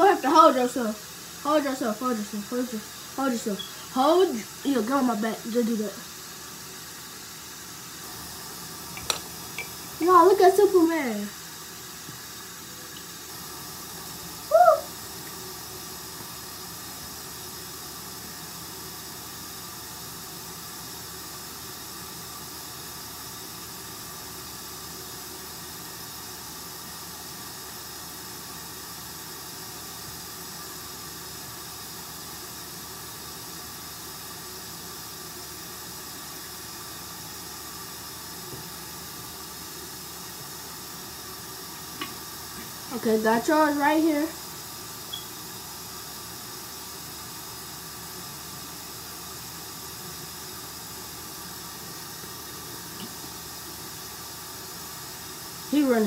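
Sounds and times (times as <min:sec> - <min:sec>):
room noise hiss: 0:00.0 - 0:56.0
hooted voice sound: 0:14.5 - 0:15.0.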